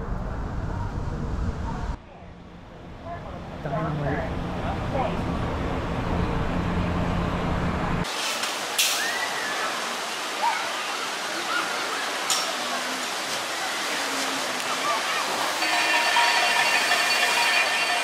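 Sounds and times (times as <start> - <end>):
distant crowd voices and shouts: 8.0 - 18.0
water rushing down slides: 8.0 - 18.0
splashy hisses: 8.1 - 17.7.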